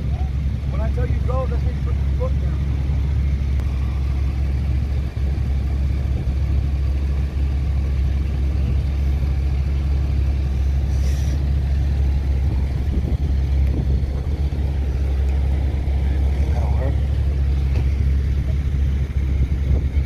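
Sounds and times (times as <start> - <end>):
wind buffeting microphone: 2.7 - 20.0
brief hiss: 10.9 - 11.4.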